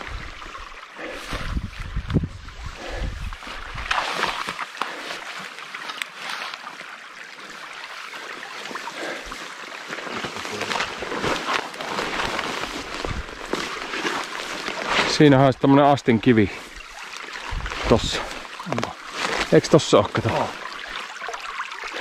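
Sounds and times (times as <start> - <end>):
brook babbling over stones: 0.0 - 22.0
wind on microphone: 1.3 - 4.0, 17.5 - 18.2.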